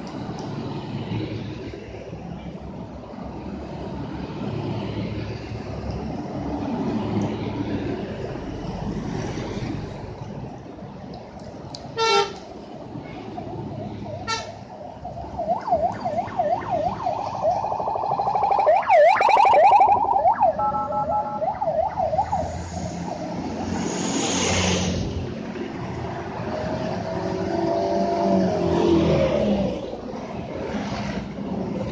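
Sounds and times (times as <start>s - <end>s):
heavy vehicle passing: 12.8s - 31.9s
siren yelp: 13.8s - 23.8s.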